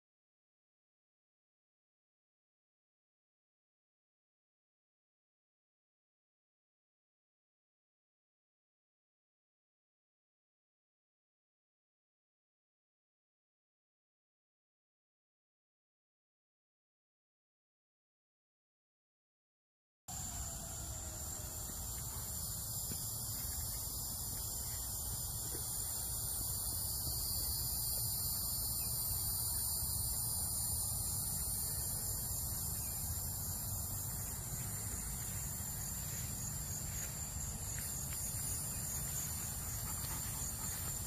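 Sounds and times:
insects buzzing: 20.1s - 41.0s.

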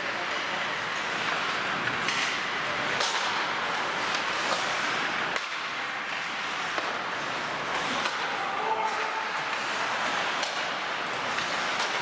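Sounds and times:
skates scraping on ice: 0.0s - 12.0s
sticks striking puck: 1.1s - 12.0s.

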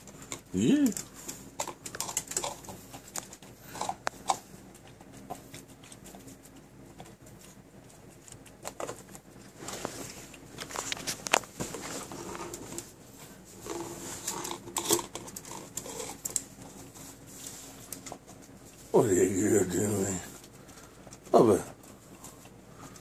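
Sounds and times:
plastic cup scraping wooden floor: 13.6s - 16.2s.

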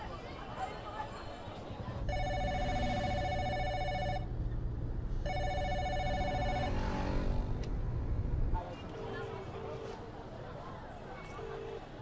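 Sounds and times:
phone ringing with trilling ring: 2.1s - 4.3s, 5.2s - 6.8s.

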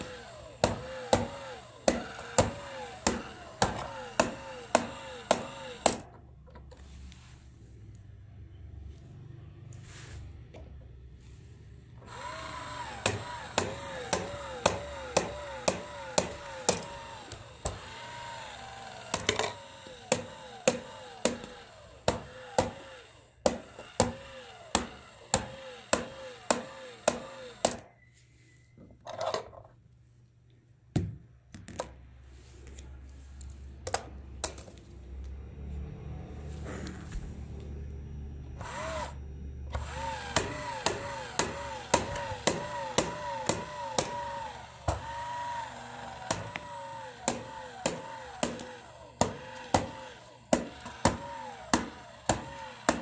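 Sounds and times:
small motor whirring: 0.0s - 6.1s, 12.0s - 27.8s, 38.6s - 53.0s.

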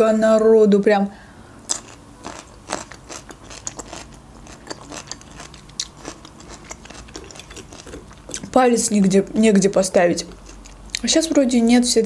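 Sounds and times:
person chewing food: 1.6s - 8.6s, 10.2s - 11.0s
wet mouth clicks: 2.8s - 8.5s.

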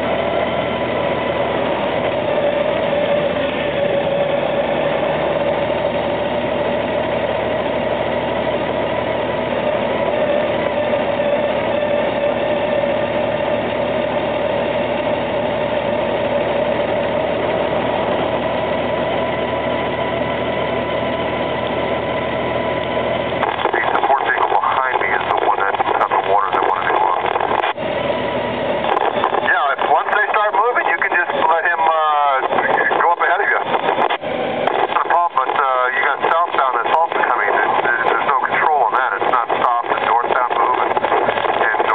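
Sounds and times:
motorcycle engine running: 0.0s - 23.6s
wind noise: 33.6s - 35.1s, 39.2s - 41.9s.

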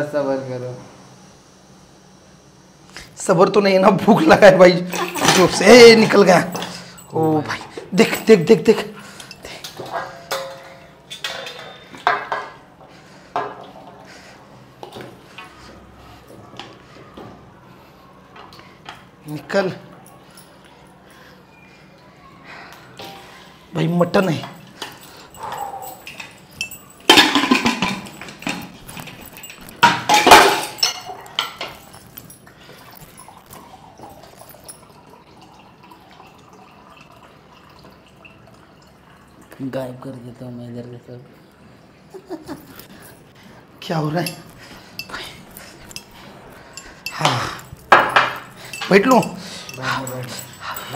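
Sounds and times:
metal pot clanking on bowl: 9.7s - 12.6s, 26.6s - 28.6s, 29.8s - 31.8s.

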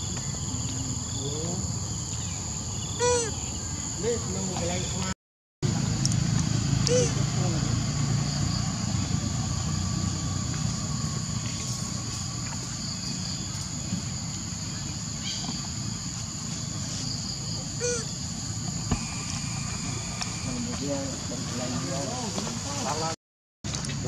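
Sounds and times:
high-pitched insect chorus: 0.0s - 5.1s, 6.8s - 23.1s
low steady rumble: 5.6s - 22.9s.

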